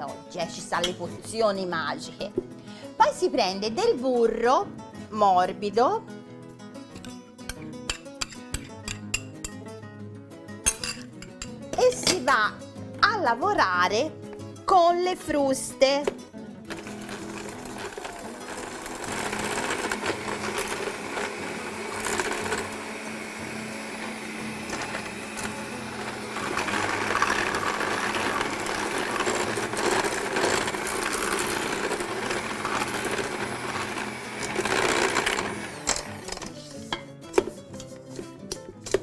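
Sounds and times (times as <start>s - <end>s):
electric hand mixer running: 16.7s - 36.5s.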